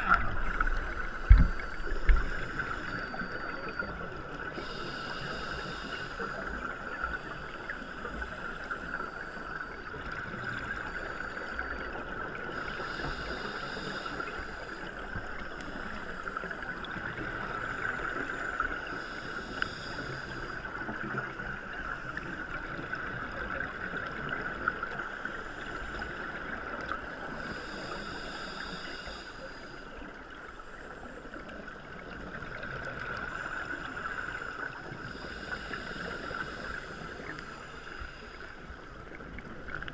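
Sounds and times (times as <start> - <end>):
regulator bubbles gurgling: 0.0 - 29.1
muffled underwater hiss: 0.0 - 39.9.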